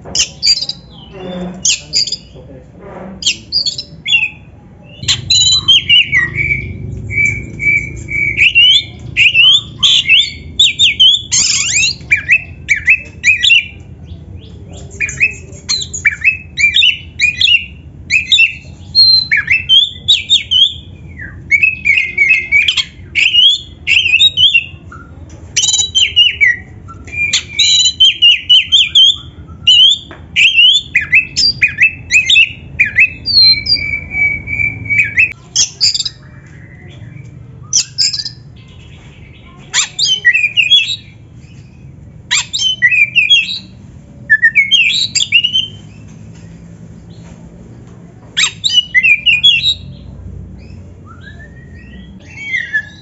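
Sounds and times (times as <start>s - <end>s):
bird squawking: 3.2s - 13.6s
bird singing whistled phrases: 3.3s - 13.8s, 15.0s - 38.5s, 39.3s - 41.1s, 42.3s - 45.8s, 48.4s - 50.0s, 50.8s - 53.0s.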